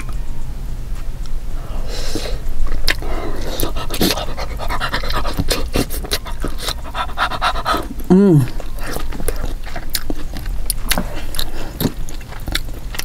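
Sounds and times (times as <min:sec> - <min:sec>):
wet chewing: 0:02.6 - 0:13.0.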